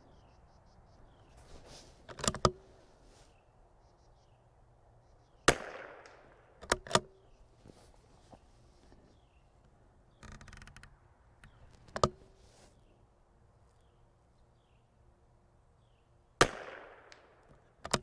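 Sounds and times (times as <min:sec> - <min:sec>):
rifle bolt clicks: 0:02.1 - 0:02.6, 0:05.7 - 0:07.2, 0:17.1 - 0:18.0
rifle shot with echo: 0:05.4 - 0:07.2, 0:16.4 - 0:17.8.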